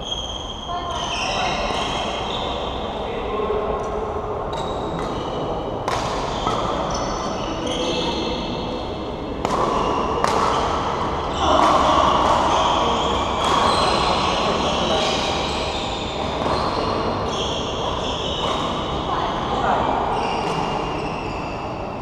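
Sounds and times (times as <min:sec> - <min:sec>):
shoes squeaking on floor: 0:00.0 - 0:02.8, 0:09.7 - 0:22.0
racket hitting shuttlecock: 0:04.8 - 0:05.2, 0:05.8 - 0:06.9, 0:09.4 - 0:19.0, 0:20.4 - 0:20.8.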